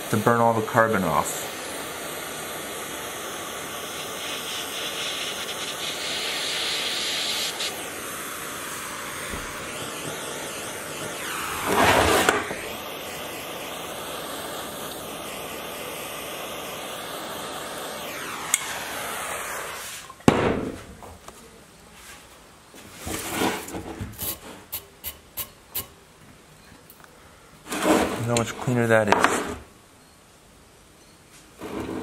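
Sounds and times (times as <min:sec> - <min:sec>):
propane torch hissing: 0:00.0 - 0:20.2, 0:24.1 - 0:26.0.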